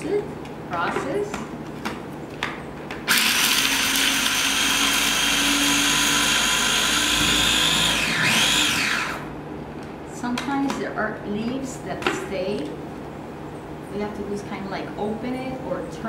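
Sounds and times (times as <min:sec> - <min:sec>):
food processor motor whining: 0:03.1 - 0:09.3.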